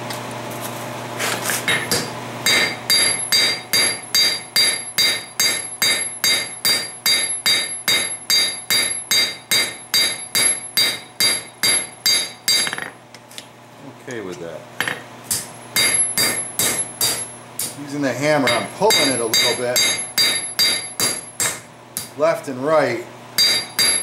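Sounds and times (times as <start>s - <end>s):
hammer striking metal on anvil: 1.7s - 13.0s, 14.8s - 17.8s, 18.4s - 22.1s, 23.4s - 24.0s.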